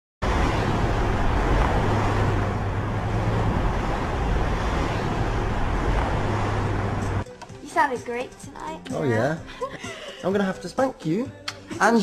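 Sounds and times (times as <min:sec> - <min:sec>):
road traffic hum: 0:00.2 - 0:08.1.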